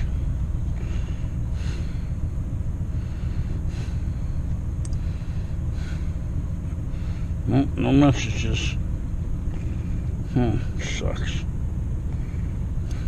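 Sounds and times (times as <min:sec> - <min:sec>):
low rumble inside car: 0:00.0 - 0:13.0
person breathing through the nose: 0:00.7 - 0:02.2, 0:02.8 - 0:06.2.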